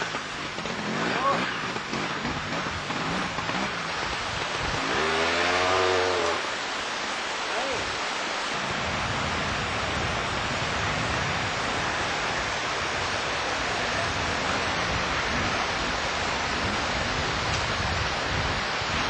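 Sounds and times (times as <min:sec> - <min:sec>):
water rushing over rocks: 0:00.0 - 0:19.0.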